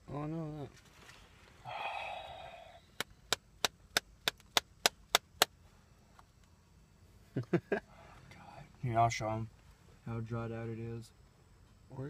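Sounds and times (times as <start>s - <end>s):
soft rustle: 0.6s - 1.6s, 9.5s - 10.1s.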